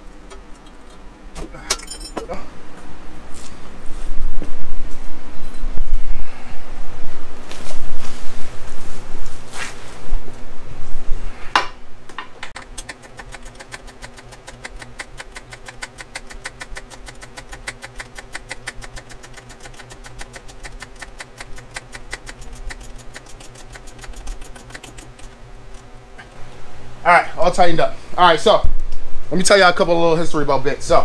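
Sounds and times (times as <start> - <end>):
steady low hum: 0.0 - 31.0
ratchet wrench clicking: 12.6 - 25.3.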